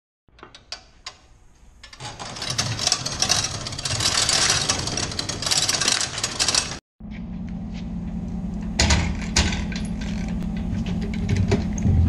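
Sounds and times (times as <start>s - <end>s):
metal roll-up door rattling: 2.0s - 6.8s.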